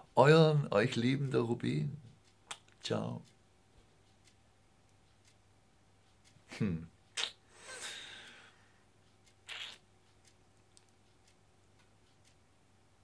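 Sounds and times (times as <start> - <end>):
man humming: 6.5 - 6.9
breath sounds: 7.4 - 8.8.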